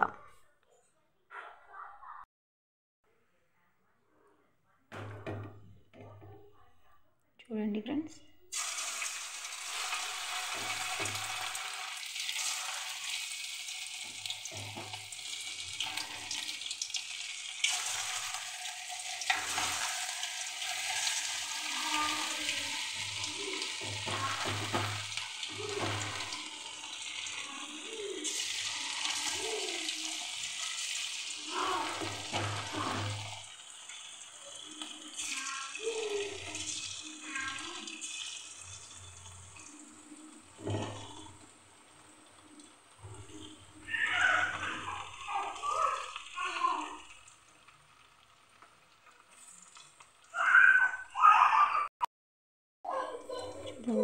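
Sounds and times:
chicken sizzling in hot oil: 0:08.5 - 0:51.0
sharp crackles of frying: 0:08.5 - 0:51.3.

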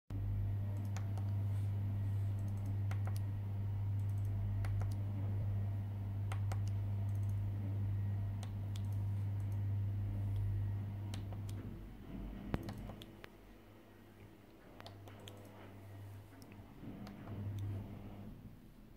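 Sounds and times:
steady low hum: 0:00.1 - 0:18.9
keypad button clicks: 0:04.0 - 0:05.0.

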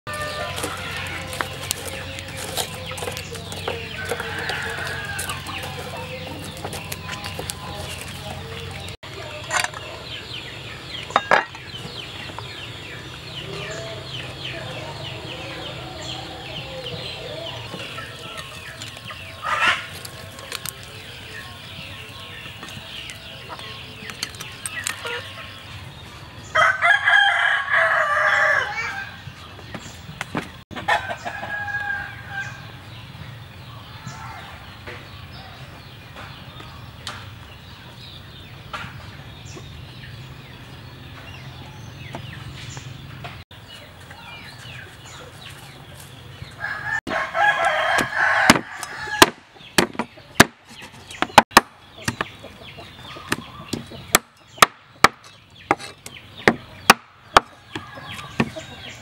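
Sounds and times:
rooster crowing: 0:00.1 - 0:01.7, 0:03.6 - 0:06.3, 0:26.5 - 0:29.2, 0:30.9 - 0:32.8, 0:46.6 - 0:49.2
chicken calls: 0:00.1 - 0:59.0.

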